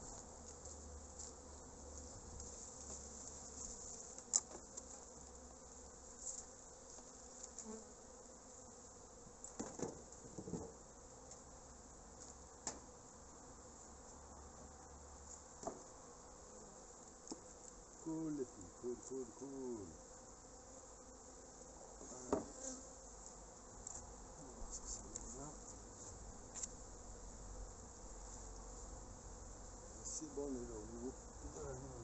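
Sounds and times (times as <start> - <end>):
bees flying close past: 0.0 - 32.0
honeybees buzzing: 0.0 - 32.0
knocks on wooden hive cover: 22.3 - 22.6.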